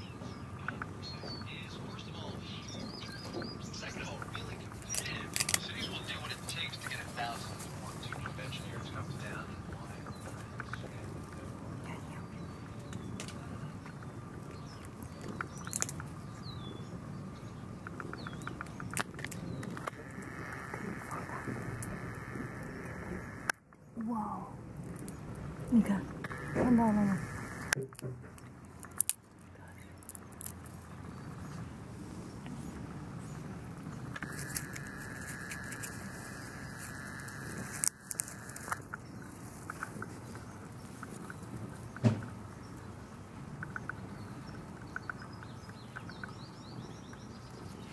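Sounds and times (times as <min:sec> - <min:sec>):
fur and grass rustling on microphone: 0:00.0 - 0:17.5, 0:19.2 - 0:23.5, 0:30.7 - 0:43.5
low background rumble: 0:00.0 - 0:47.9
small birds chirping: 0:00.0 - 0:47.9
sharp clicks: 0:14.7 - 0:16.2, 0:17.8 - 0:23.8, 0:24.9 - 0:29.4, 0:34.1 - 0:42.8.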